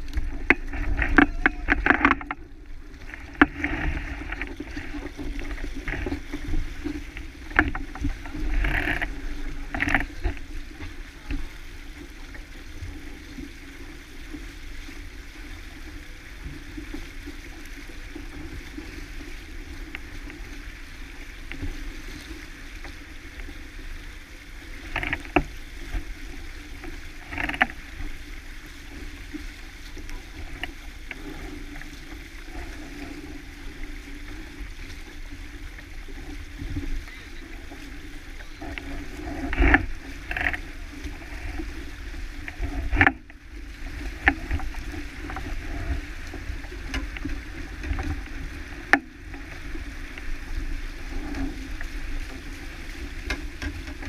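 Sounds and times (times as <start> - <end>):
wind and water rushing: 0.0 - 54.0
wind rumbling on microphone: 0.0 - 54.0
sharp knocks and clicks: 0.1 - 2.4, 7.1 - 9.1.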